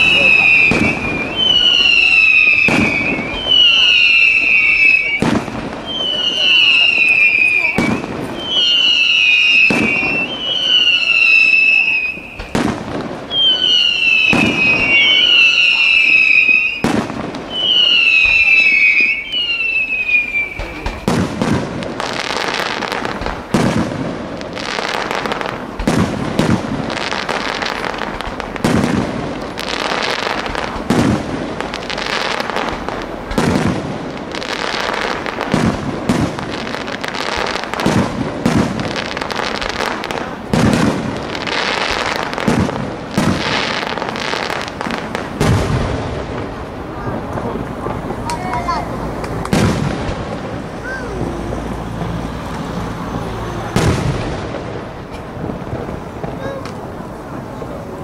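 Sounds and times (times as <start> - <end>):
falling firework whistles: 0.0 - 23.9, 24.5 - 46.0, 49.2 - 57.0
fireworks crackling: 0.0 - 58.0.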